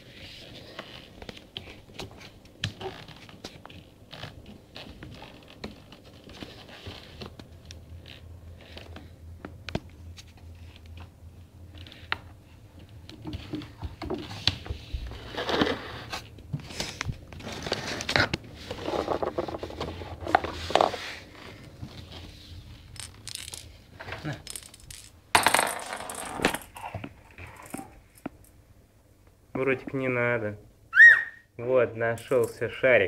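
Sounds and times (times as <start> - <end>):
camera scraping on floor: 15.1 - 22.4.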